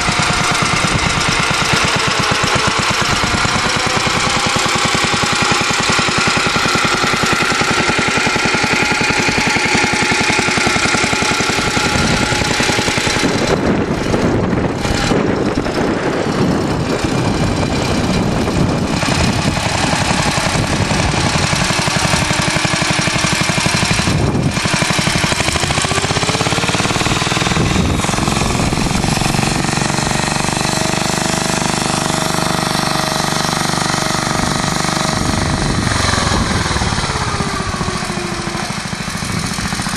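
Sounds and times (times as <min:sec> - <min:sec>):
tractor engine chugging: 0:00.0 - 0:39.9.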